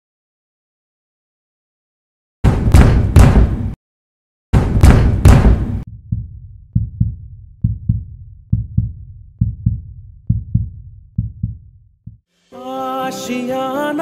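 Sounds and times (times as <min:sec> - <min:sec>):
heartbeat thumps: 0:04.6 - 0:12.2.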